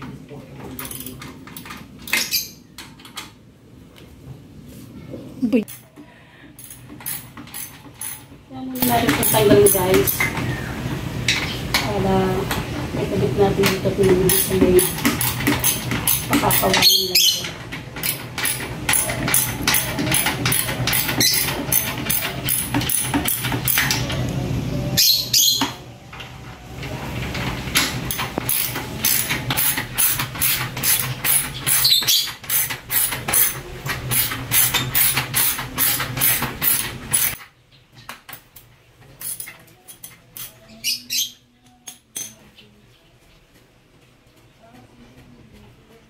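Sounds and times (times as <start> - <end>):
ratchet wrench clicking: 6.6 - 10.3, 18.0 - 24.0, 28.1 - 37.4.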